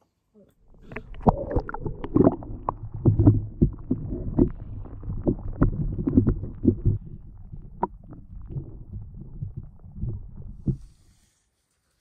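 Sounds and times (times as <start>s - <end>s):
low underwater rumble: 0.6s - 11.1s
underwater clicks and knocks: 0.7s - 10.9s
bubbles gurgling underwater: 0.7s - 11.0s.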